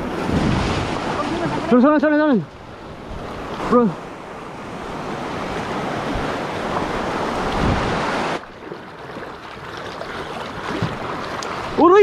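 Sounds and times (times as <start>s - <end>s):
wind noise on microphone: 0.0s - 1.7s, 4.9s - 8.4s
waves washing through rocky shallows: 0.0s - 12.0s.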